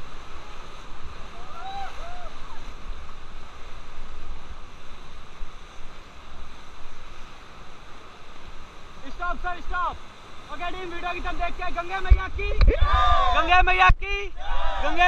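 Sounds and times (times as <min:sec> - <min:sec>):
river rapids rushing: 0:00.0 - 0:15.0
wind rumble on microphone: 0:12.0 - 0:14.8
person shouting: 0:12.7 - 0:13.5.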